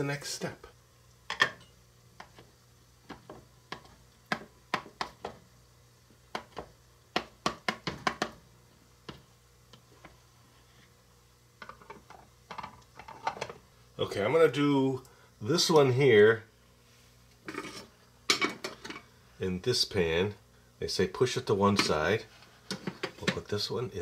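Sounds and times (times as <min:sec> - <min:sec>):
knife tapping plastic bowl: 0:03.1 - 0:05.4.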